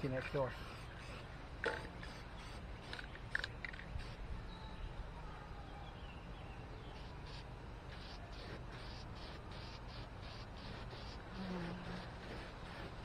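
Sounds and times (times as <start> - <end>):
spray paint can hisses: 7.0 - 13.0.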